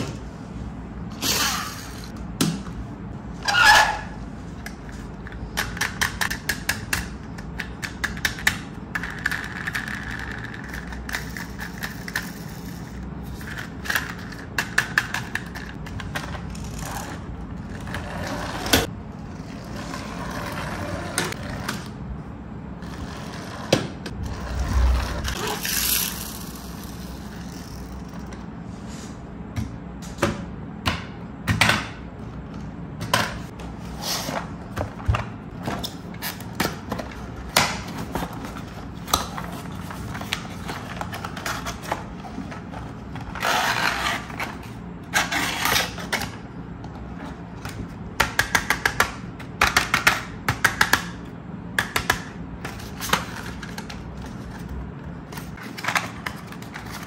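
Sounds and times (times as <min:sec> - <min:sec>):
toy track scraping: 0:24.4 - 0:28.2.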